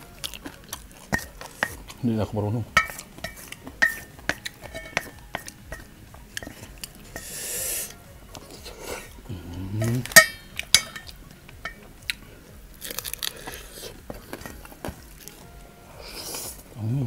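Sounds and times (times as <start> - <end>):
hiss of sucked-in air: 7.2 - 8.0
person humming mm: 7.2 - 8.0, 8.6 - 10.1
crunching bites: 12.0 - 15.4.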